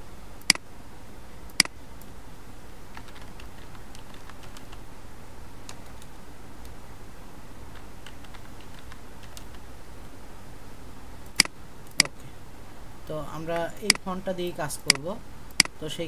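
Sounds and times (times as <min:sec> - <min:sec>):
computer keyboard typing: 0:02.9 - 0:04.9, 0:05.6 - 0:06.8, 0:07.7 - 0:09.6.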